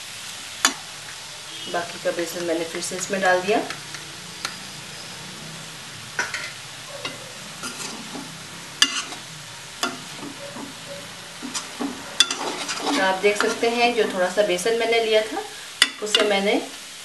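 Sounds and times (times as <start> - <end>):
faint sizzle: 0.0 - 17.0
spatula scraping pan: 1.8 - 14.6
spatula tapping pan: 6.2 - 9.2, 9.8 - 14.2.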